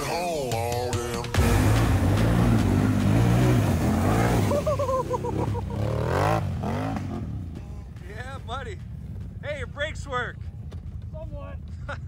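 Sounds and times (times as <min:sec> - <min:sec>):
quad engine revving: 0:01.2 - 0:08.0.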